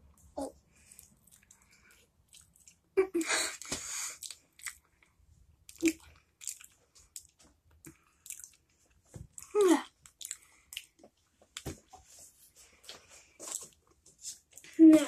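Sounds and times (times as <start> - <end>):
child chewing: 0.0 - 15.0
wet mouth clicks and smacks: 5.7 - 8.6.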